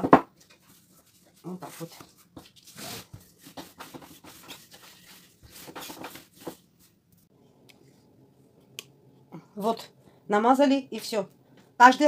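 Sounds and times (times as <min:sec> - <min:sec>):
rolling pin scraping dough: 0:00.6 - 0:06.6.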